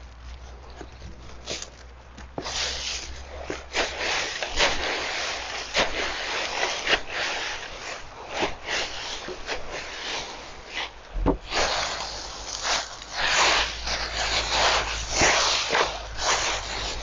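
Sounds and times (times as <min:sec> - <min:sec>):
fork crunching dry leaves: 0:00.0 - 0:17.0
tines scraping and knocking: 0:00.0 - 0:17.0
low thump: 0:11.2 - 0:11.4.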